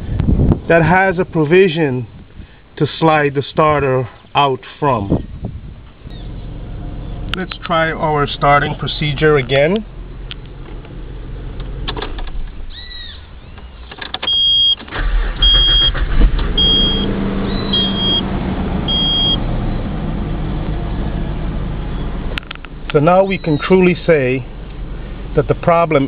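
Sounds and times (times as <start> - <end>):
ignition clicks: 9.4 - 12.6
warning chime beeping: 16.6 - 17.1, 17.7 - 18.3, 18.9 - 19.4.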